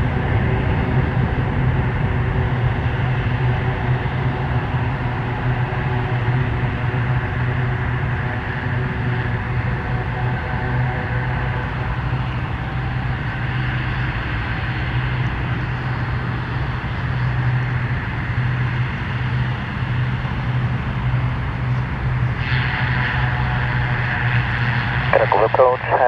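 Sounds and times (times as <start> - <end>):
turboprop engines humming: 0.0 - 26.0
radio hiss: 25.0 - 26.0.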